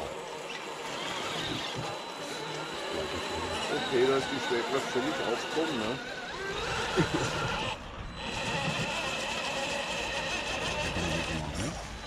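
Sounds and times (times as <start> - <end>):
electric motor whining: 0.0 - 12.0.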